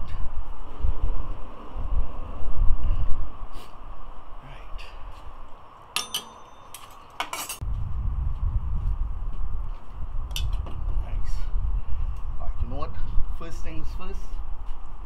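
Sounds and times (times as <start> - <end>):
steady low rumble: 7.6 - 15.0.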